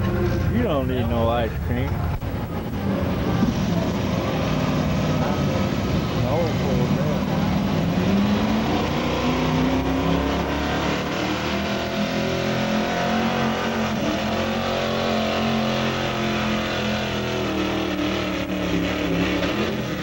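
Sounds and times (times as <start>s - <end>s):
truck engine under heavy load: 0.0s - 20.0s.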